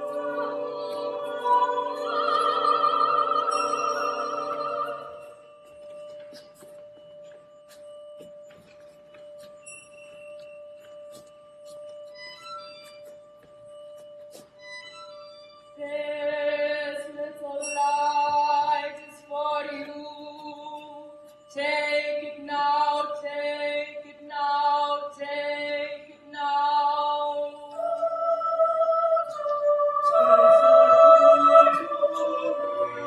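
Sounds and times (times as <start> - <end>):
choir singing: 0.0 - 5.2, 27.8 - 33.0
steady held tone: 0.0 - 24.0, 24.6 - 33.0.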